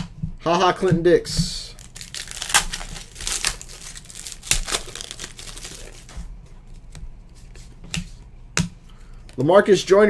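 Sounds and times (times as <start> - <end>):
card pack wrapper crinkling: 1.8 - 6.1.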